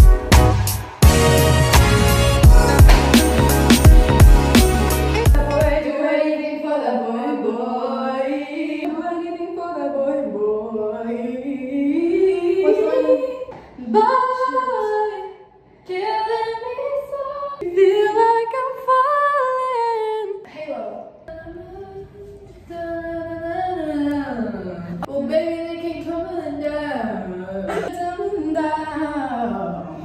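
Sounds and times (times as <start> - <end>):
girls singing a cappella: 5.2 - 20.6.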